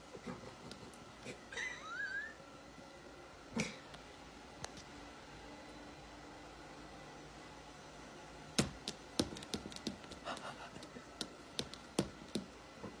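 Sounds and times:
faint steady background hum: 0.0 - 13.0
sharp taps and light knocks: 8.6 - 12.5.

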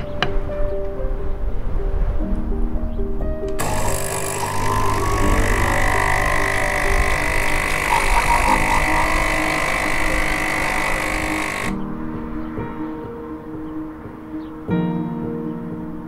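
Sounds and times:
soft background music: 0.0 - 16.0
espresso machine hissing: 3.6 - 11.8.

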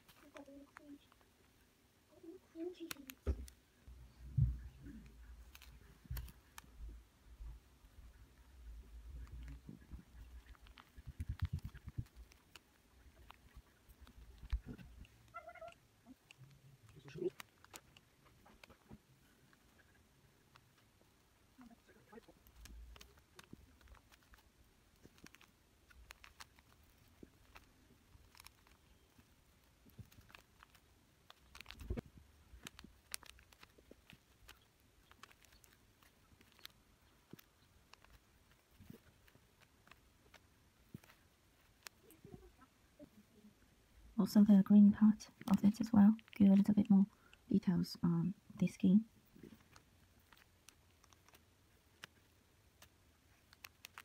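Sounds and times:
small clicks: 9.1 - 20.9, 21.6 - 42.5, 49.3 - 54.0.

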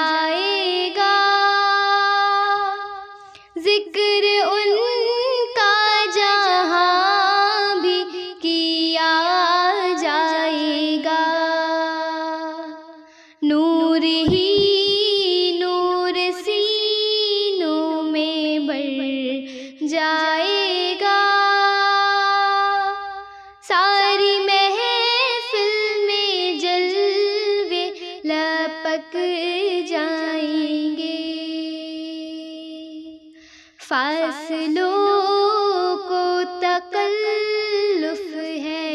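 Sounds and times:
girl singing devotional song: 0.0 - 38.9.

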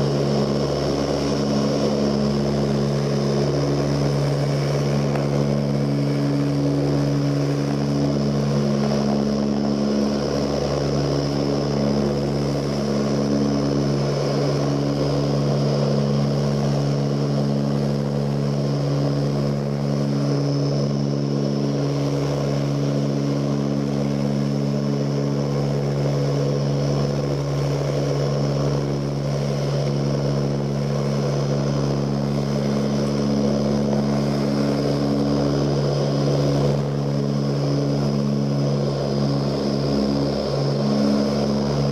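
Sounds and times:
airflow rushing: 0.0 - 41.9
propeller engine drone: 0.0 - 41.9.

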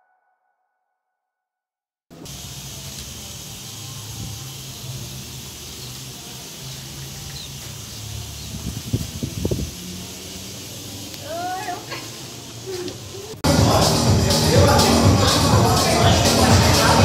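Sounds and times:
even background hiss: 2.2 - 13.4.

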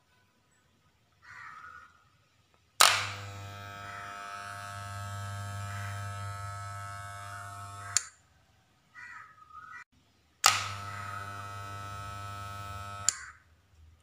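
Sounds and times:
hair trimmer buzzing: 2.8 - 8.2, 10.4 - 13.3
trimmer switch click: 2.8 - 8.2, 10.4 - 13.3.

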